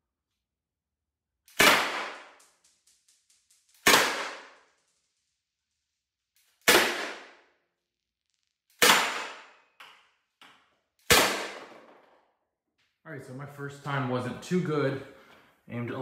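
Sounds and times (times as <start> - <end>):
launcher shots: 1.5 - 5.0, 6.6 - 7.4, 8.7 - 9.6, 11.0 - 11.9.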